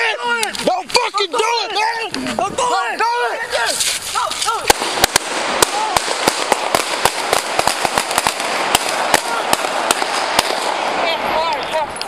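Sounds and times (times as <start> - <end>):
sharp gunshots: 4.5 - 11.6.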